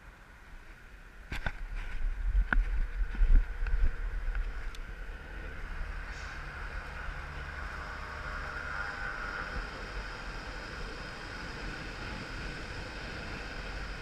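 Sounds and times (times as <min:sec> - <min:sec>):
wind buffeting microphone: 0:01.2 - 0:07.4.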